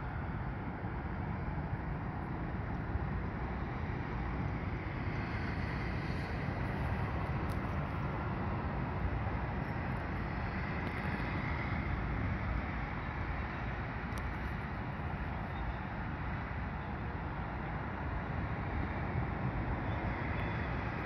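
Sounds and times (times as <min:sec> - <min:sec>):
wind noise on microphone: 0:00.0 - 0:21.0.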